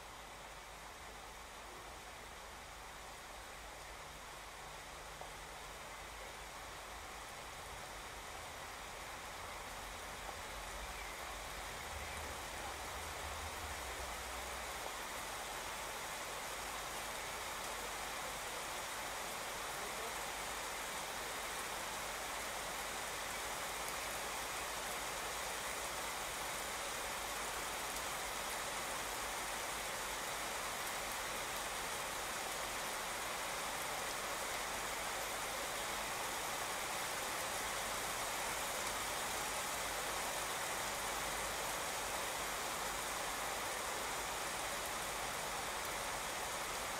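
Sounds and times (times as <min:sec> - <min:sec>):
heavy rain on pavement: 0:00.0 - 0:46.9.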